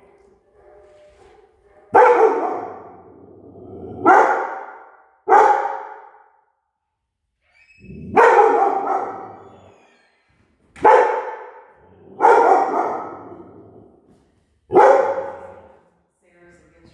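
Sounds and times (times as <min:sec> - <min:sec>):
dog barking with echo: 0:01.8 - 0:03.3, 0:04.0 - 0:06.4, 0:08.1 - 0:09.7, 0:10.8 - 0:13.8, 0:14.7 - 0:15.7.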